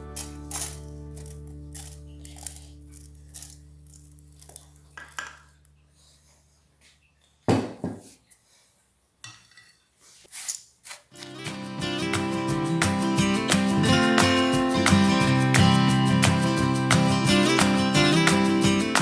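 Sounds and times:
background music: 0.0s - 5.3s, 11.2s - 19.0s.

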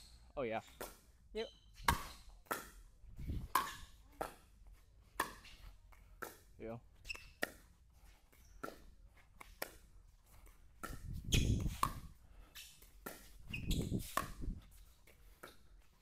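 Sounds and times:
shoe squeaks on court: 0.0s - 4.4s, 5.2s - 6.0s, 7.0s - 9.7s, 10.8s - 16.0s
scuffing footwork: 1.7s - 16.0s
paddles hitting plastic ball: 8.6s - 16.0s.

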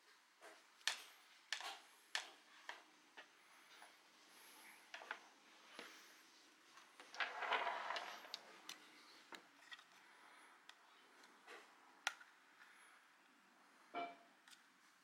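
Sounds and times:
small plastic clicks: 0.8s - 2.9s, 12.0s - 12.4s
rubbing and rustling: 5.9s - 10.0s.

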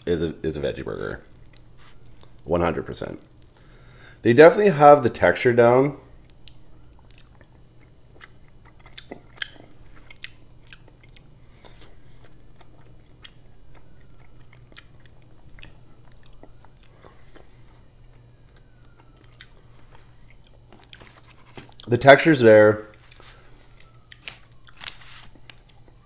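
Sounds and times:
wet chewing mouth clicks: 6.3s - 17.5s, 18.8s - 21.0s.

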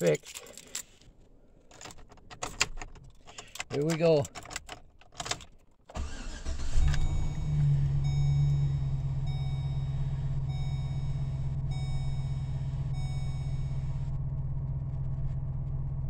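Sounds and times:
truck engine cranking and idling: 5.9s - 16.0s
dashboard warning chime: 6.6s - 14.0s.

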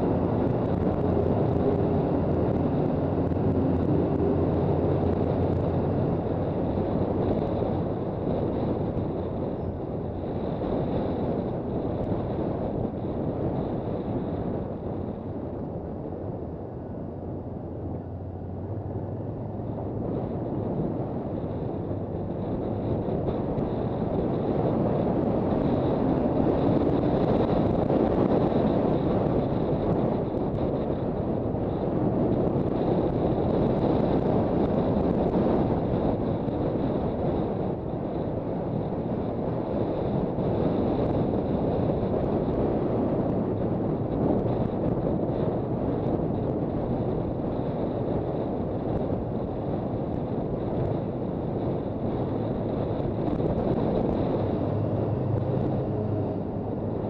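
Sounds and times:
road noise: 0.0s - 57.0s
wind rushing over microphone: 0.0s - 57.0s.

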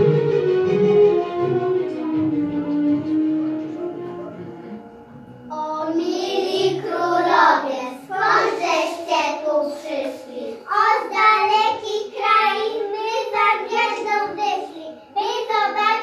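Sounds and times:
young children singing: 5.5s - 16.0s.

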